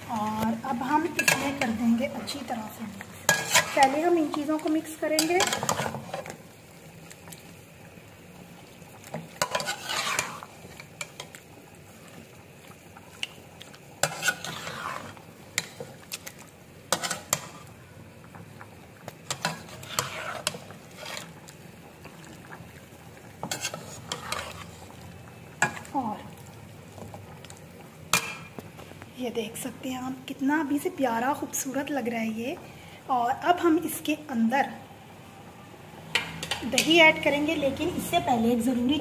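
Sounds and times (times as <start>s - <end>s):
metal spoon scraping a pot: 1.0s - 1.8s, 3.2s - 6.3s, 9.4s - 11.2s, 14.0s - 15.9s, 16.9s - 17.6s, 19.3s - 21.4s, 23.4s - 24.9s.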